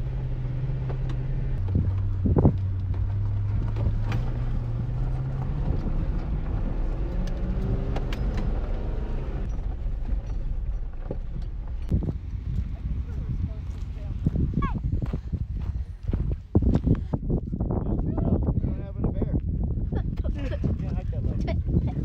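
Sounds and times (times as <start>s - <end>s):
vehicle engine drone: 0.0s - 17.0s.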